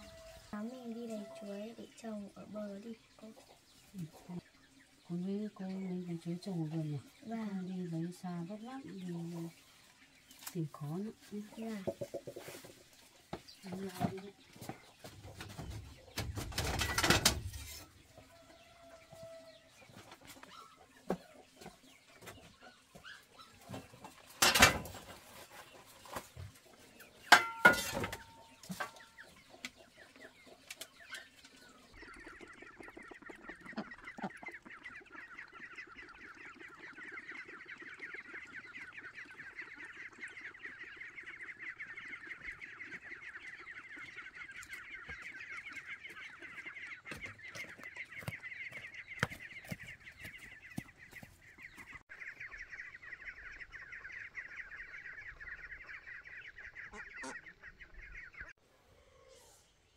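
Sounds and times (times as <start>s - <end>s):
chatter of many birds: 0.0s - 59.9s.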